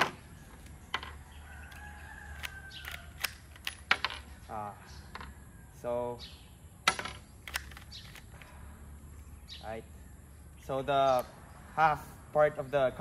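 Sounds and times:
plastic clicks of rifle action: 2.3s - 4.1s, 7.4s - 8.5s.

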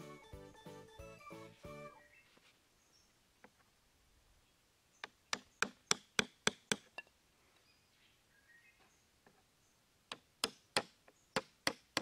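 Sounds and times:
hatchet knocking wooden stick: 5.0s - 7.1s, 10.1s - 12.0s.

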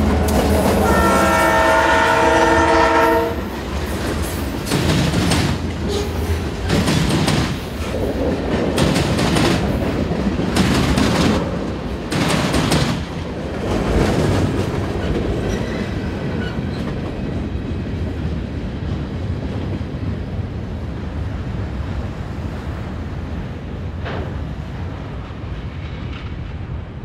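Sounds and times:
freight train rumble: 0.0s - 27.0s
train wheels clacking over rail joints: 2.9s - 19.8s.

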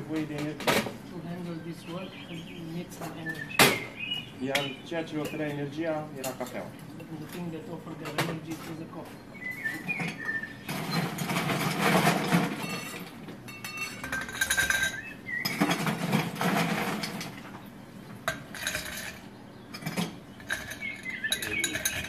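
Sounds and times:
glassware and ice clinking: 9.7s - 17.5s, 18.2s - 22.0s.

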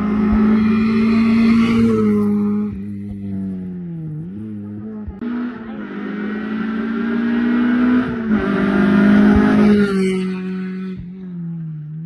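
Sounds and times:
rally car engine at high revs: 0.0s - 12.0s.

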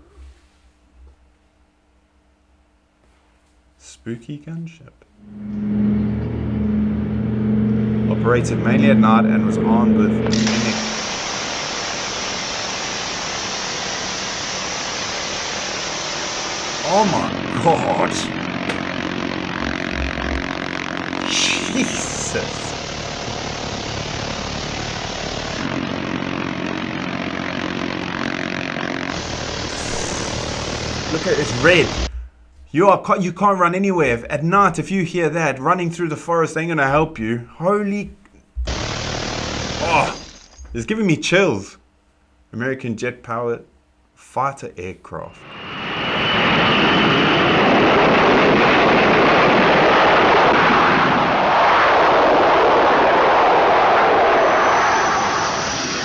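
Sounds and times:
propeller engines droning: 5.2s - 13.5s, 15.8s - 32.1s, 45.3s - 56.0s.

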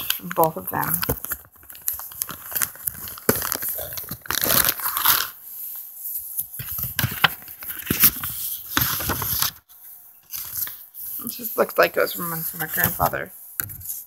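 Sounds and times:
paper rustling and crinkling: 0.0s - 14.0s.

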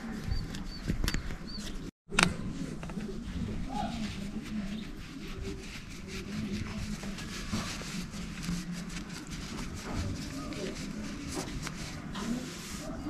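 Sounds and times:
towel rubbing on peppers: 2.6s - 13.0s.

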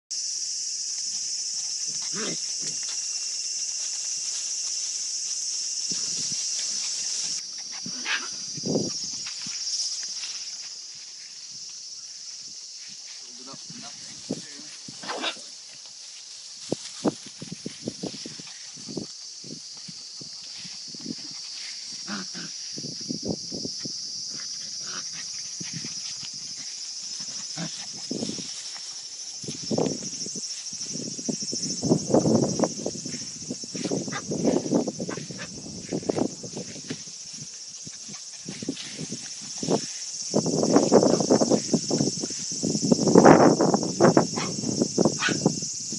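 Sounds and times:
high-pitched insect chorus: 0.1s - 45.9s
puppies playing: 0.9s - 11.2s, 24.3s - 30.1s.

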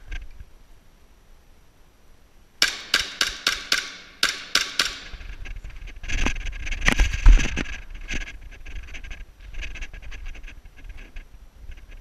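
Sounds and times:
airsoft pistol shots: 2.6s - 5.3s.

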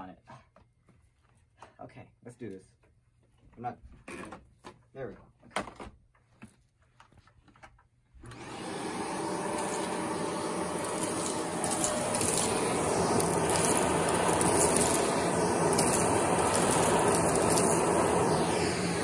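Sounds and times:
vacuum cleaner motor running: 8.2s - 19.0s
crackles of chips sucked up: 8.3s - 19.0s.

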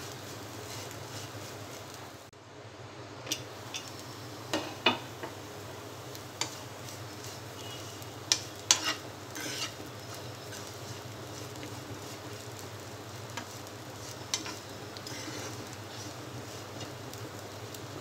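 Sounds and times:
faint sizzle: 0.0s - 18.0s
metal spatula scraping pan: 7.6s - 11.0s, 14.3s - 16.2s.

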